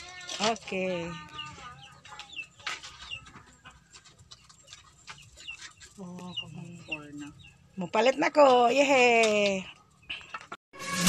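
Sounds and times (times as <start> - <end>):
chickens clucking: 0.2 - 8.5.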